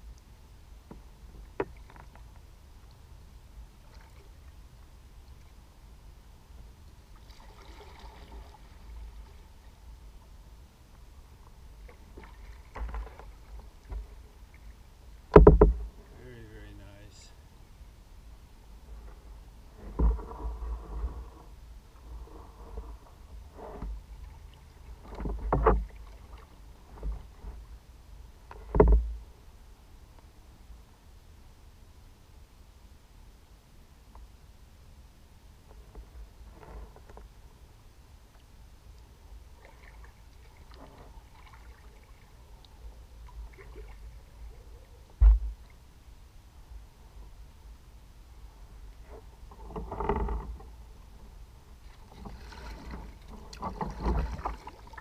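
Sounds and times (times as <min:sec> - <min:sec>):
faint low rumble: 0:00.0 - 0:55.0
kayak paddle splashing: 0:07.1 - 0:09.7, 0:11.7 - 0:14.8, 0:19.7 - 0:27.5, 0:39.5 - 0:45.8, 0:51.8 - 0:55.0
paddle thump on hull: 0:15.3 - 0:16.0, 0:19.8 - 0:21.2, 0:25.0 - 0:26.0, 0:28.6 - 0:29.2, 0:45.2 - 0:45.6, 0:51.9 - 0:55.0.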